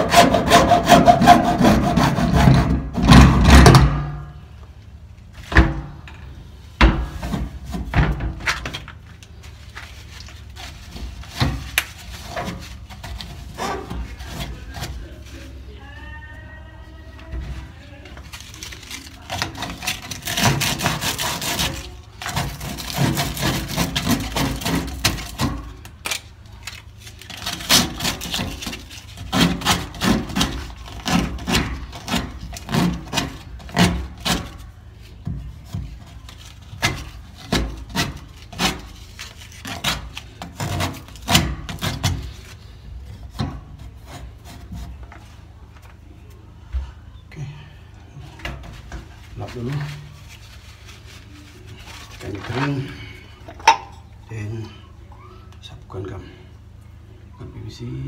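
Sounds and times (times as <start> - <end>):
scraping on plastic pipe: 0.0 - 3.9, 6.8 - 15.5, 18.2 - 26.1, 27.2 - 45.5.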